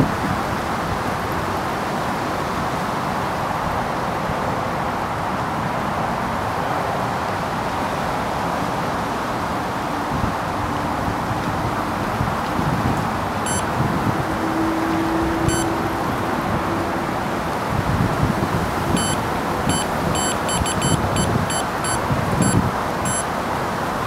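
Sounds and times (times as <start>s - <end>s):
electronic alarm short high beeps: 13.5s - 13.7s, 15.4s - 15.8s, 19.0s - 23.3s.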